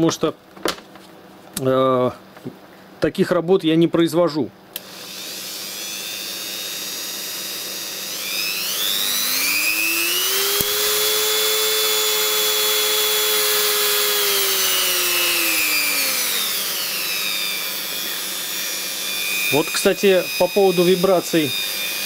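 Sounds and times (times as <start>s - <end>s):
rotary tool motor whine: 4.8s - 22.0s.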